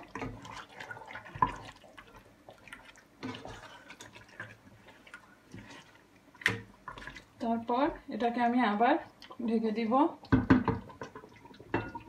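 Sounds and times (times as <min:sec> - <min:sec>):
spatula stirring wet food in pot: 0:00.0 - 0:12.0.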